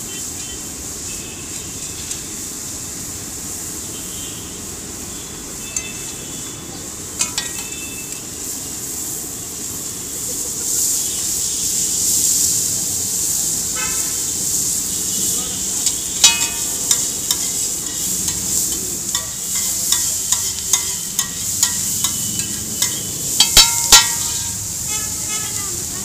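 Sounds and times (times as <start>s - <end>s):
eggs sizzling on griddle: 0.0s - 26.0s
street traffic: 0.0s - 26.0s
eggs cracked on iron griddle: 7.2s - 7.8s, 15.8s - 25.4s.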